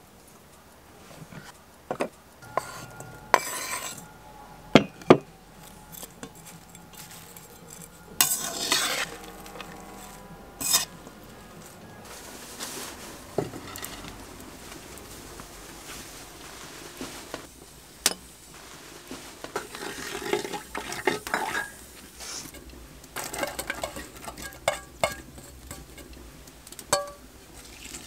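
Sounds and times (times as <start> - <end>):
scraping and rustling of vegetables: 0.2 - 28.0
clay pot knocking: 4.8 - 5.3.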